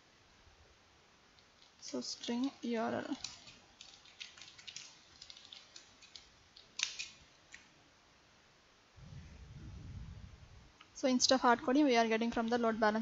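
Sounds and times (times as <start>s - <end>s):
keyboard typing: 1.4s - 7.6s.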